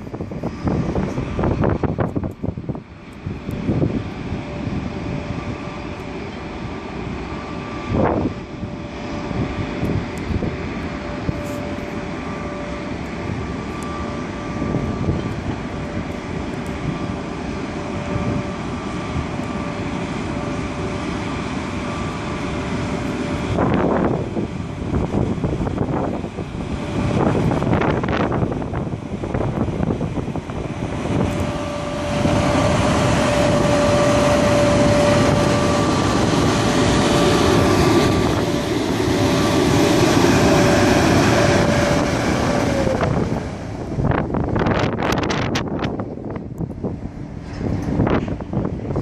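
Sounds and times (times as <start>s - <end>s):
electric locomotive whine: 0.0s - 49.0s
train rumble: 0.0s - 49.0s
wind noise on microphone: 0.0s - 49.0s.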